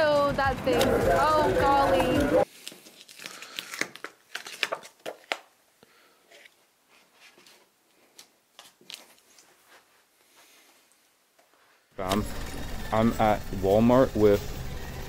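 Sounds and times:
photo prints rustling: 0:00.8 - 0:05.5, 0:06.2 - 0:10.6.

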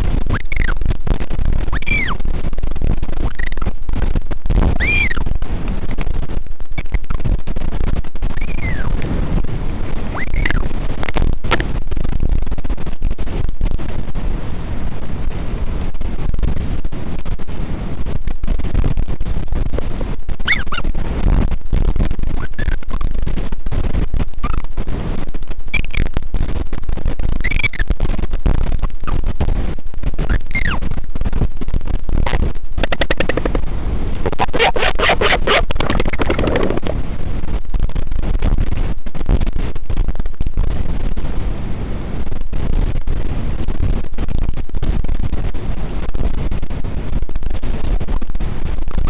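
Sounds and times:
wind buffeting microphone: 0:00.0 - 0:49.0
albatross calls: 0:01.8 - 0:02.2, 0:04.8 - 0:05.2, 0:20.5 - 0:20.9, 0:30.3 - 0:30.8.

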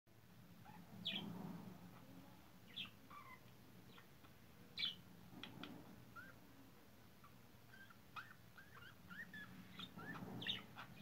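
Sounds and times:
budgerigar chirping: 0:02.7 - 0:05.0, 0:07.2 - 0:11.0.

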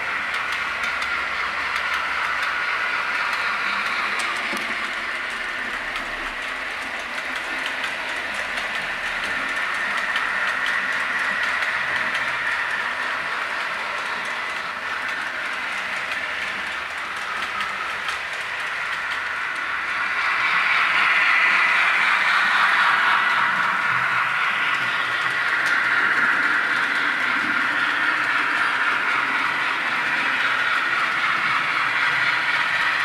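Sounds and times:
model train wheels rolling on track: 0:00.0 - 0:33.0
recorded steam locomotive sound: 0:00.0 - 0:33.0.

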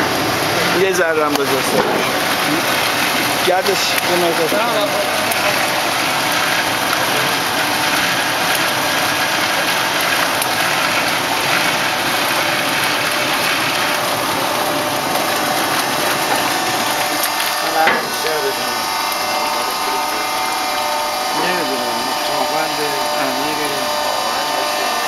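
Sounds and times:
production machinery running: 0:00.0 - 0:25.0.

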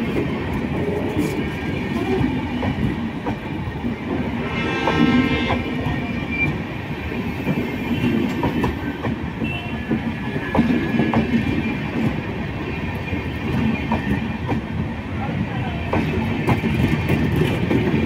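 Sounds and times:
train wheels rumbling on rails: 0:00.0 - 0:18.0
clacks over rail joints: 0:07.4 - 0:12.3, 0:13.0 - 0:14.8, 0:15.6 - 0:18.0.

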